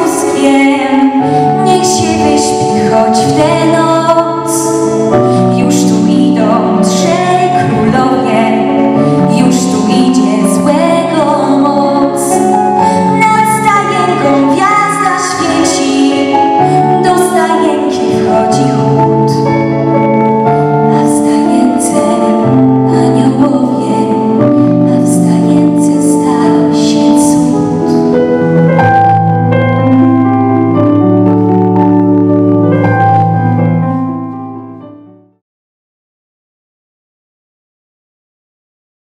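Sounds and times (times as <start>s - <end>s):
sustained musical accompaniment: 0.0s - 35.3s
lead woman singing: 5.5s - 18.9s, 20.9s - 24.2s.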